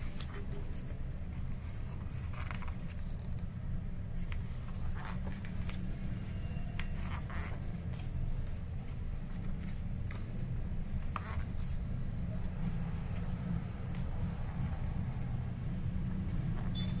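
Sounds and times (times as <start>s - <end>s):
book pages turning: 0.0s - 15.4s.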